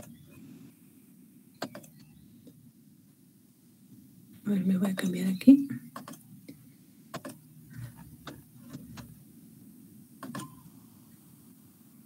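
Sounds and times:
low steady hum: 0:00.0 - 0:12.0
computer mouse and keys clicking: 0:01.6 - 0:02.6, 0:05.9 - 0:06.2, 0:07.1 - 0:09.1, 0:10.2 - 0:10.6.

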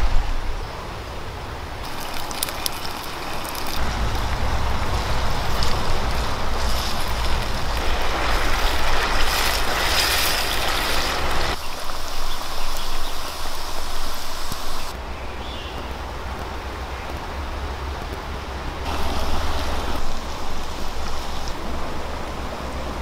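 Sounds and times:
wood fire crackling: 0:01.8 - 0:14.9
low rumble: 0:03.8 - 0:09.9.

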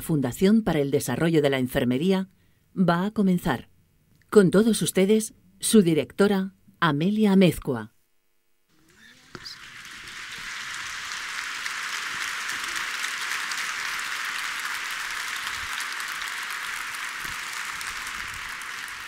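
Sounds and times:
audience applauding: 0:08.7 - 0:19.0.

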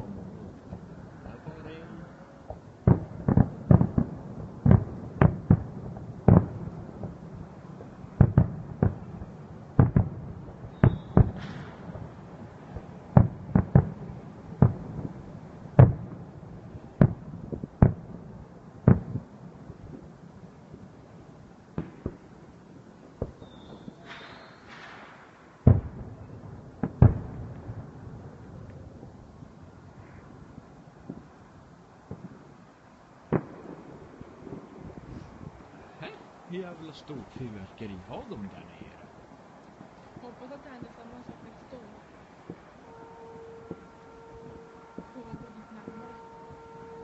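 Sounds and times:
firework shells bursting: 0:09.8 - 0:12.1, 0:23.2 - 0:26.0.

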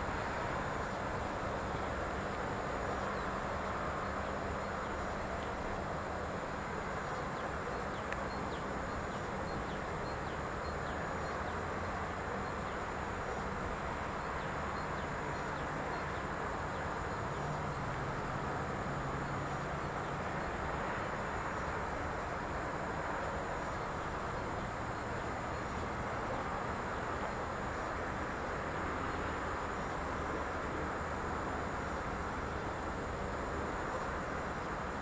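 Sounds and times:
distant road traffic: 0:00.0 - 0:35.0
faint high ticks: 0:05.4 - 0:05.6, 0:07.9 - 0:09.2, 0:17.7 - 0:18.1.

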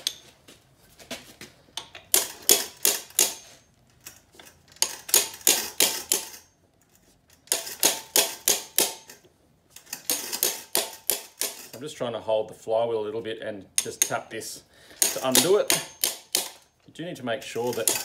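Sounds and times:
hammer tapping metal wrench: 0:01.8 - 0:03.6, 0:04.8 - 0:06.5, 0:07.5 - 0:11.8, 0:13.8 - 0:14.3, 0:15.0 - 0:16.7, 0:17.6 - 0:18.0.

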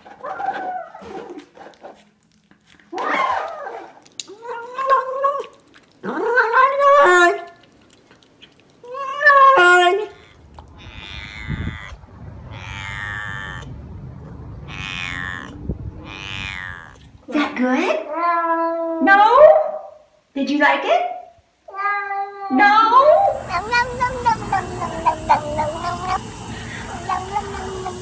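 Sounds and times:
kitten squeaking: 0:10.1 - 0:13.7, 0:14.7 - 0:17.0, 0:23.3 - 0:28.0
car engine rumble: 0:12.0 - 0:16.1
dog whining: 0:23.1 - 0:28.0.

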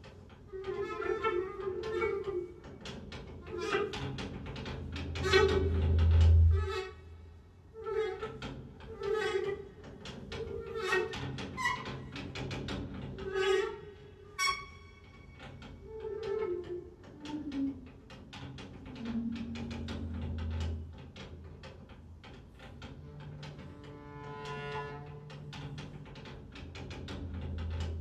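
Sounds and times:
deep low electronic rumble: 0:05.6 - 0:07.3.

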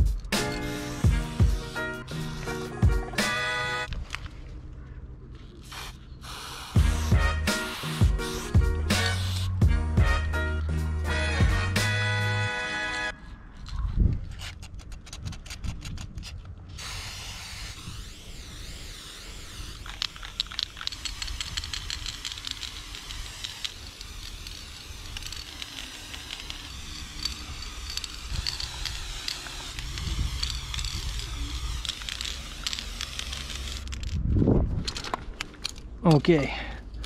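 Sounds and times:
spray paint can hissing: 0:00.0 - 0:03.8, 0:05.5 - 0:10.2, 0:16.8 - 0:34.2.

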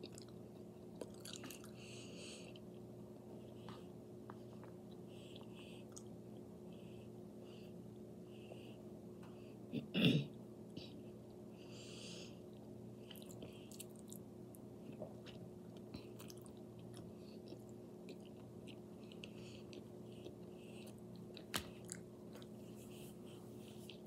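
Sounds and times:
person chewing food: 0:00.0 - 0:06.6, 0:12.5 - 0:24.0
steady low hum: 0:00.0 - 0:24.0.

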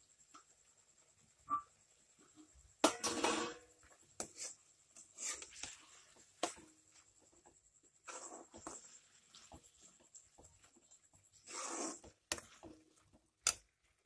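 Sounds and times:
plastic ladle scraping metal pan: 0:11.4 - 0:12.8.

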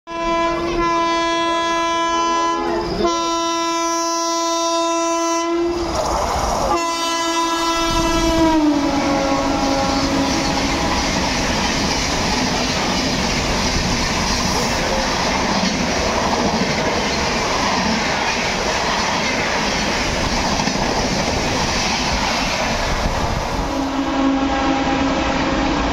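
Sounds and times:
train horn blasts: 0:00.1 - 0:05.8, 0:06.7 - 0:11.0, 0:23.7 - 0:25.9
train wheels clattering: 0:07.8 - 0:23.5.

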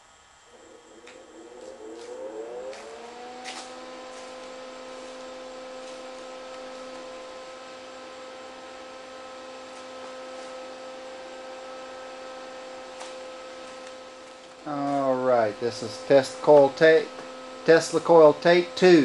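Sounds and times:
tesla coil spark buzzing: 0:00.0 - 0:19.0.

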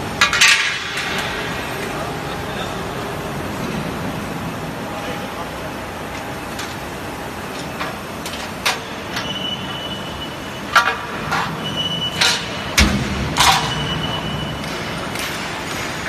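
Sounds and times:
roll forming machine drone: 0:00.0 - 0:16.0.

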